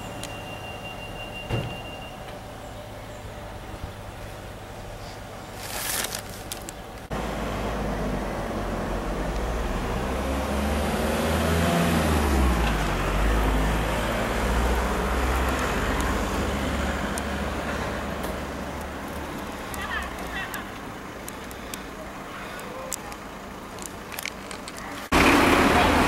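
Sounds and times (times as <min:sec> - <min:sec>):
steady low traffic rumble: 0:00.0 - 0:26.0
vehicle passing: 0:07.1 - 0:23.7, 0:25.0 - 0:26.0.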